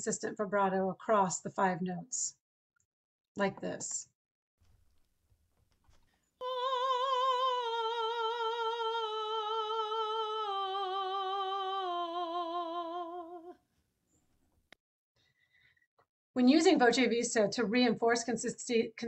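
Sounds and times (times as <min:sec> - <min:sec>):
woman singing a scale: 0:06.4 - 0:13.6.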